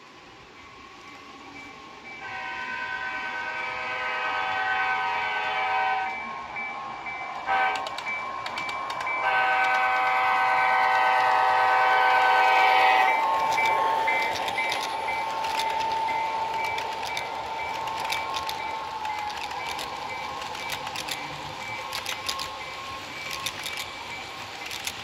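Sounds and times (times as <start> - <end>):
model train horn: 2.2 - 6.3, 7.5 - 8.0, 9.2 - 16.6
wheels clicking on track: 7.0 - 25.0.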